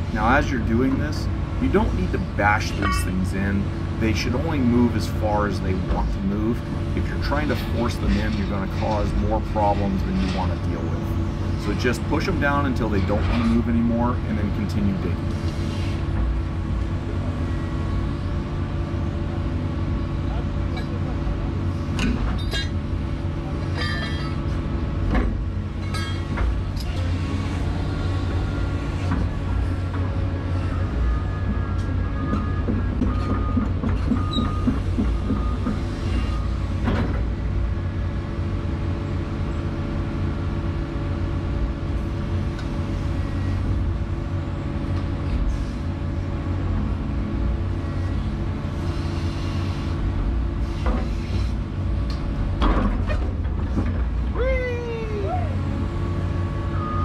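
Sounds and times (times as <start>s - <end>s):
excavator diesel engine: 0.0s - 57.0s
hydraulics working: 0.0s - 57.0s.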